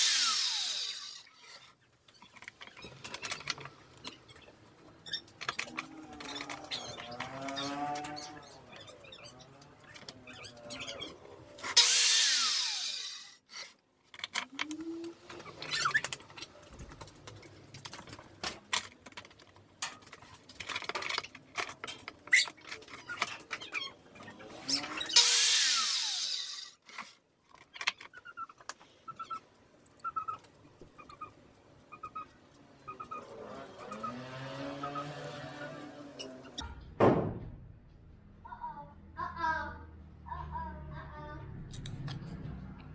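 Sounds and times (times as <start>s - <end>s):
saw blade winding down whine: 0.0s - 1.3s, 11.7s - 13.4s, 24.4s - 26.8s
circular saw cutting: 0.0s - 1.4s, 11.6s - 13.5s, 24.4s - 26.8s
clicks and handling of pieces: 1.2s - 8.9s, 13.5s - 25.1s, 26.8s - 31.6s.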